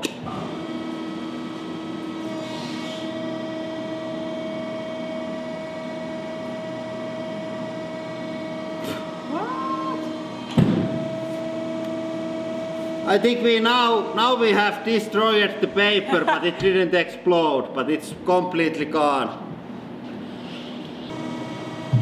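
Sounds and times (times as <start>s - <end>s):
hydraulic machine humming: 0.0s - 17.6s, 19.6s - 22.0s
loud sharp knock: 10.5s - 11.0s
rising whine: 21.1s - 22.0s.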